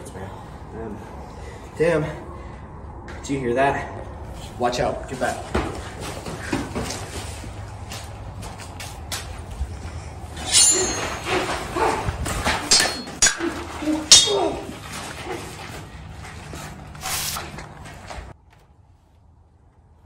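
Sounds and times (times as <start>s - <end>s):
running footsteps on dirt: 5.4s - 10.0s.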